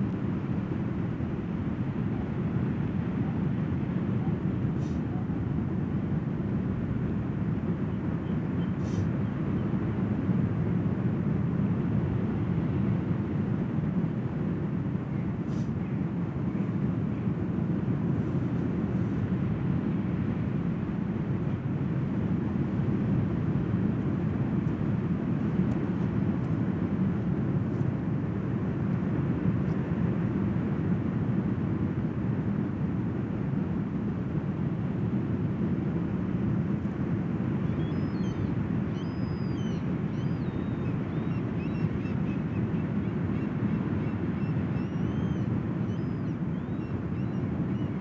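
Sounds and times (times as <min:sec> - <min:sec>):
faint bird calls: 0:37.6 - 0:48.0.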